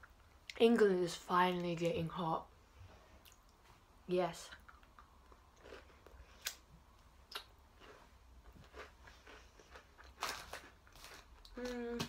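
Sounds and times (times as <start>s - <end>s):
chewing and mouth clicks: 4.5s - 6.6s, 7.3s - 11.6s.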